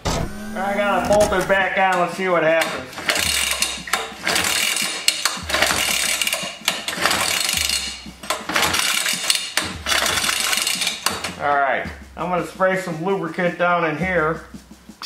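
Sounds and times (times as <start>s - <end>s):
recoil starter rope whirring: 0.3s - 11.5s.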